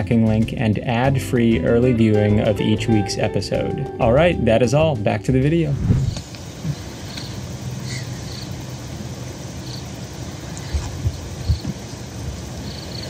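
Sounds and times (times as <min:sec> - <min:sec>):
steady low rumble: 0:00.0 - 0:12.7
soft low thumps: 0:02.4 - 0:06.8
insects chirping: 0:06.0 - 0:13.0.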